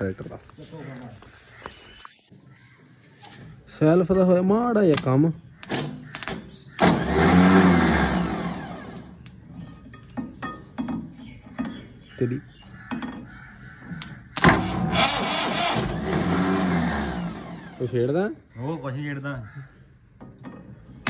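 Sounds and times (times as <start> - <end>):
tractor diesel engine revving: 6.8 - 9.3, 14.4 - 18.1.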